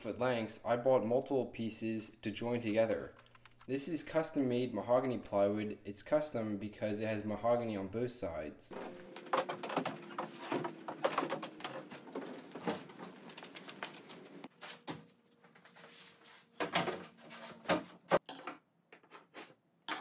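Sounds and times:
plywood sheets tapping and knocking: 9.1 - 14.5.

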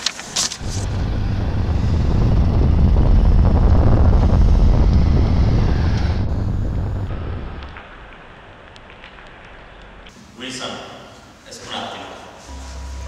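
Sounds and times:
deep loud rumble: 0.6 - 9.8.

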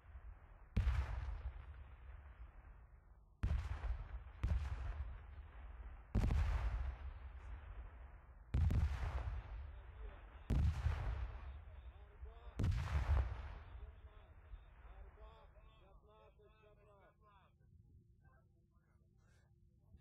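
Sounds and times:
artillery shells exploding: 12.6 - 13.7.

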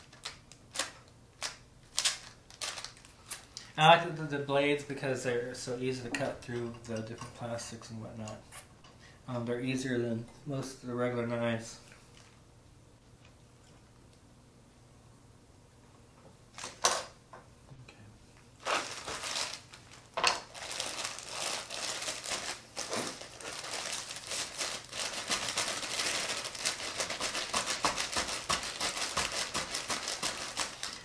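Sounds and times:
plastic packaging crinkling and tearing: 0.0 - 3.8, 18.6 - 31.0.

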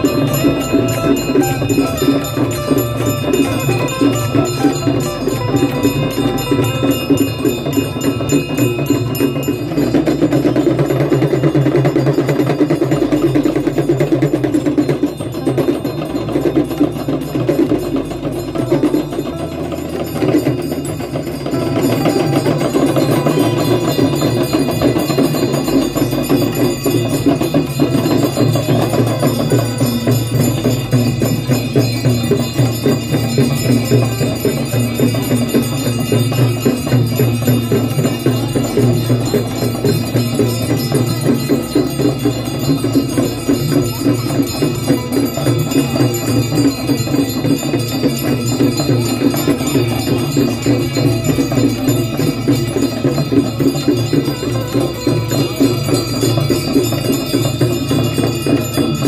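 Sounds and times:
devotional music: 0.0 - 9.2
bells and percussion struck rapidly: 0.0 - 59.0.

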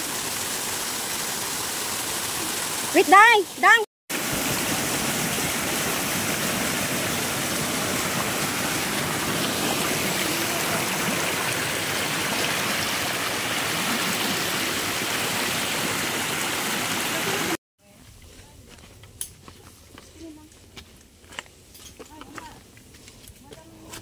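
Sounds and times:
fast stream: 0.0 - 17.6
waterfall rushing: 0.0 - 17.6.

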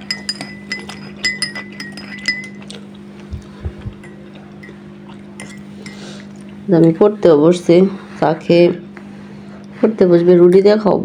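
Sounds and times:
ceramic teacups clinking: 0.0 - 2.7, 5.4 - 6.0
steady low hum: 0.0 - 11.0.

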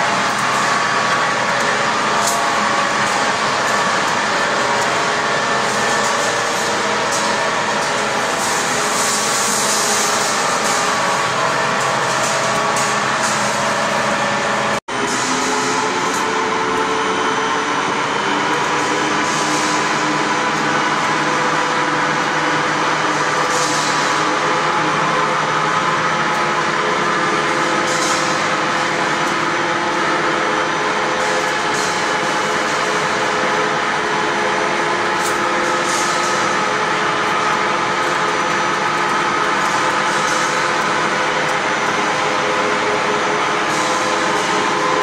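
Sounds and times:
wire drawing machines humming: 0.0 - 45.0.

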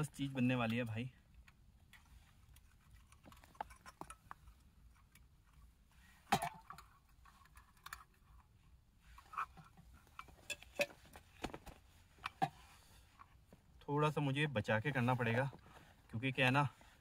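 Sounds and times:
camping gear clicks and knocks: 0.7 - 8.5, 9.1 - 13.7.

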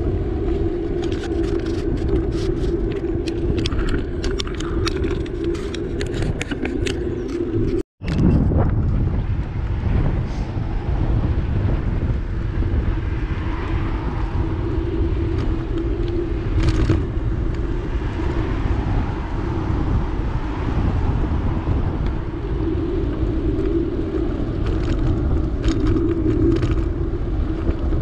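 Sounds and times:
bicycle road rumble: 0.0 - 28.0
wind: 0.0 - 28.0
cars passing: 8.9 - 28.0.

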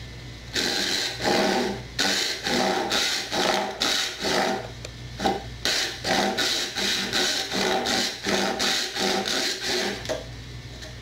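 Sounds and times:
hand saw cutting wood: 0.6 - 4.6, 5.6 - 10.0.

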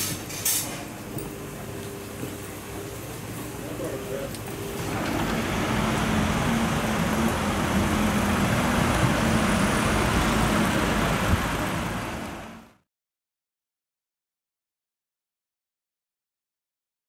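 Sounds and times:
road traffic rumble: 0.0 - 12.8.

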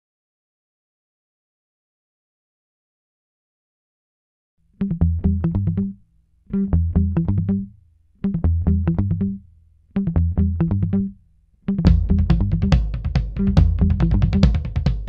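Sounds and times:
rhythmic bass and guitar music: 4.8 - 15.0.

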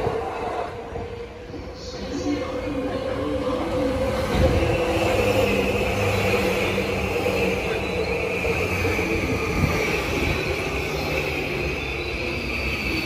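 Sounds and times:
train wheels rumbling: 0.0 - 13.0.

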